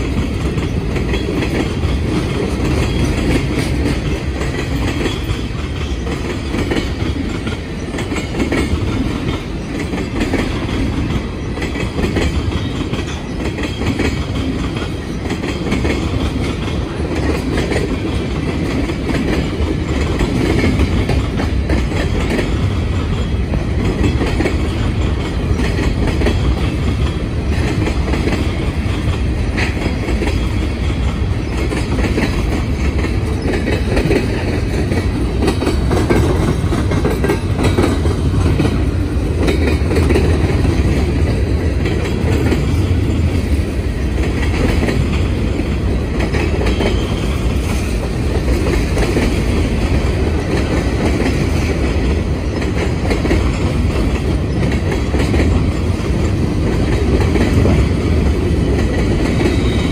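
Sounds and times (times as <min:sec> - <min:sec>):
clickety-clack over rail joints: 0:00.0 - 0:59.9
freight train wheels rumbling: 0:00.0 - 0:59.9.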